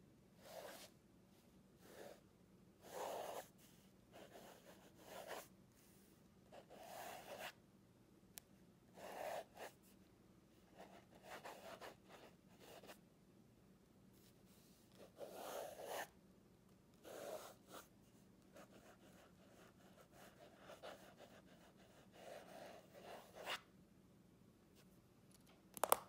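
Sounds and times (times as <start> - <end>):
pen scratching on paper: 2.8 - 3.6, 4.2 - 5.5, 6.5 - 7.5, 9.0 - 9.8, 10.7 - 13.0, 15.0 - 16.1, 17.0 - 17.9, 18.6 - 23.6.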